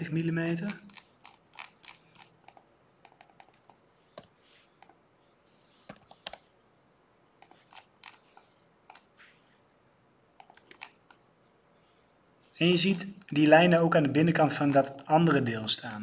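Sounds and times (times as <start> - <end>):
mouse and keyboard clicks: 0.5 - 5.0, 5.8 - 6.5, 7.4 - 9.1, 10.4 - 11.2
soft rustles: 3.2 - 6.5, 7.4 - 9.7.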